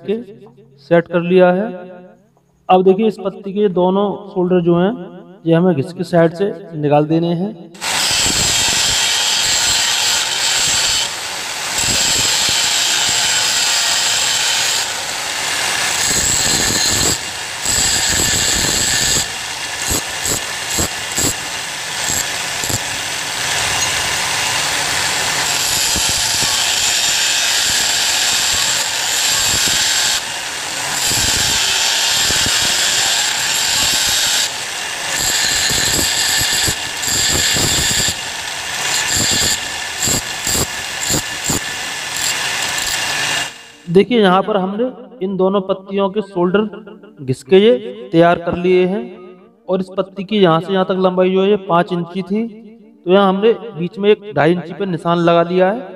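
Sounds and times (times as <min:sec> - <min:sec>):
grinding wheel grinding steel: 0:07.8 - 0:43.8.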